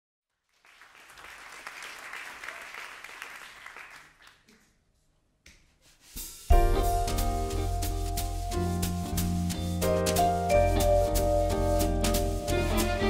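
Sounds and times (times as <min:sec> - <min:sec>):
audience applauding: 0:00.4 - 0:04.8.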